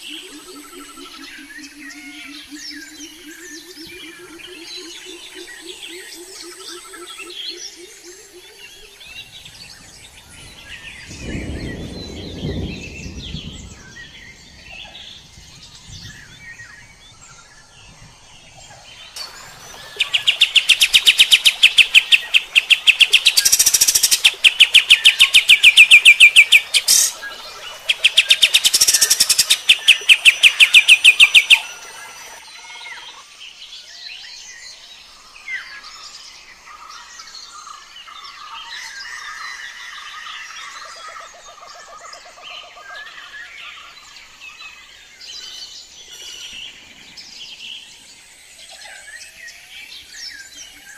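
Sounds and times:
bird singing rattling notes: 0:19.0 - 0:32.6.

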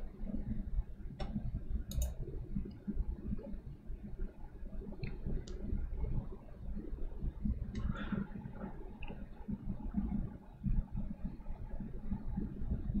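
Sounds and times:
low room rumble: 0:00.0 - 0:13.0
computer mouse clicks: 0:01.2 - 0:02.2.

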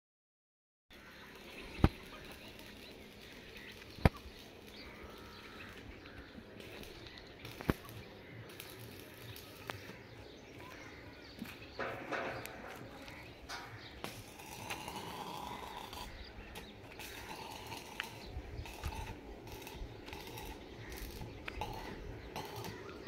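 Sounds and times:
arc welding crackle: 0:00.9 - 0:23.0
small clicks: 0:06.6 - 0:10.0.

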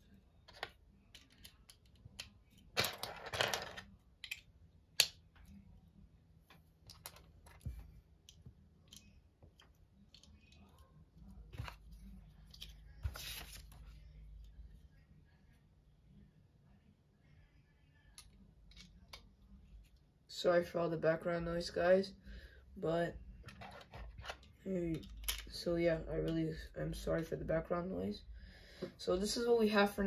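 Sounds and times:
plastic bricks clicking and clattering: 0:00.5 - 0:05.2.

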